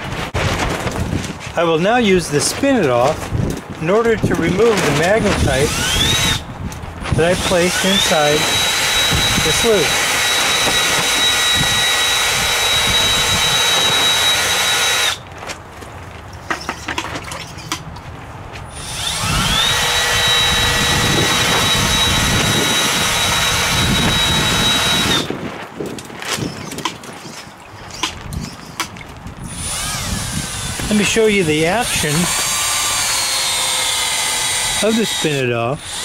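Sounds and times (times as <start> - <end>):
small electric motor whining: 5.4 - 6.5, 7.3 - 15.2, 18.7 - 25.3, 29.4 - 31.2.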